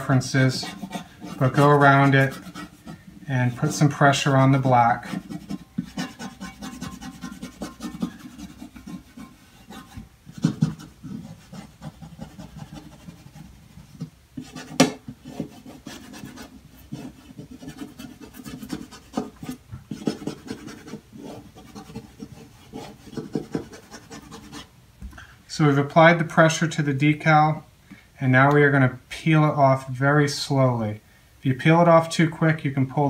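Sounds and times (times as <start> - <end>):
fingers rubbing over vinyl: 0.0 - 24.7.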